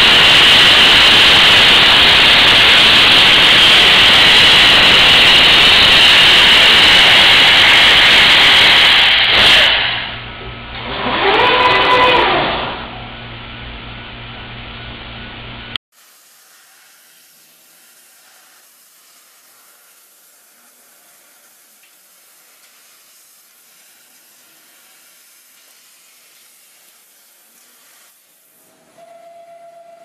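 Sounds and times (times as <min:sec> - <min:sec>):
laser cutter hissing: 0:00.0 - 0:10.2
loud machine running: 0:00.0 - 0:15.8.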